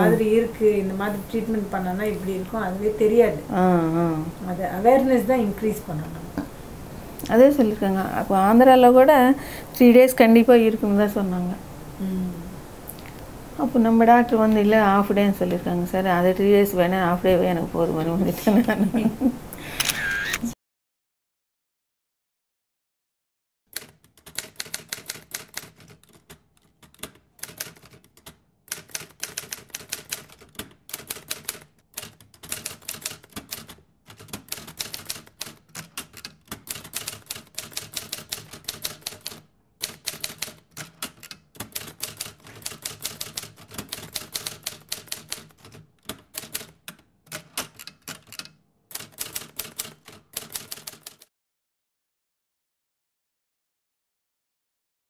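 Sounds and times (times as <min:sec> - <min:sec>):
typewriter keystroke clicks: 0:23.7 - 0:51.3.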